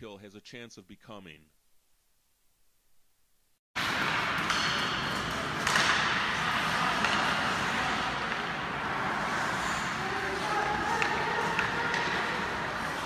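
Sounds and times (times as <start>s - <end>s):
skates on ice: 3.8s - 13.0s
stick hitting puck: 3.8s - 13.0s.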